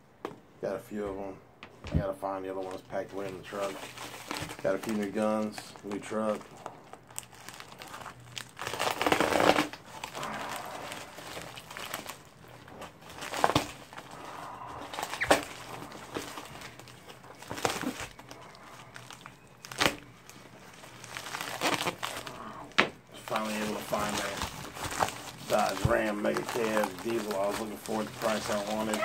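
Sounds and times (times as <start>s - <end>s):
envelope crinkling and rustling: 2.4s - 29.0s
material tearing snaps: 7.2s - 12.2s, 21.2s - 22.2s.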